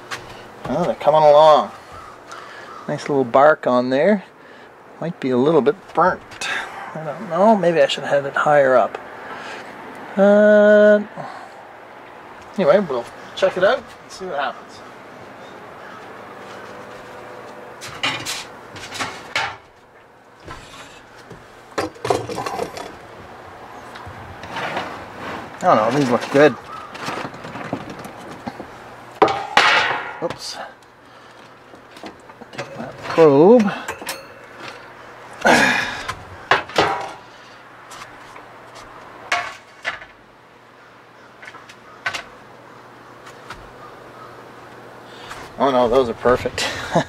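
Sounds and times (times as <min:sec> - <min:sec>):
metal rack knocking and scraping: 0:17.8 - 0:19.7, 0:29.2 - 0:30.5, 0:36.0 - 0:37.3
metal probe and rack clinking: 0:32.5 - 0:34.9.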